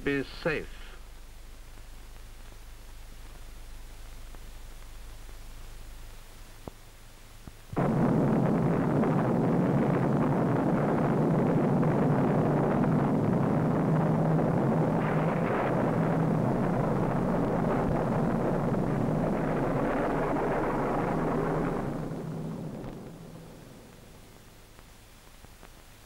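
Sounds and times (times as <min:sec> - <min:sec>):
explosion rumble: 0:07.8 - 0:24.5.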